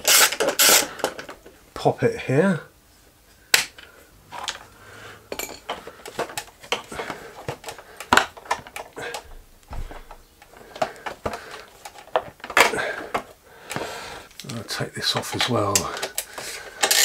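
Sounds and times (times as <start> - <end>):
dull thump: 9.3 - 10.2.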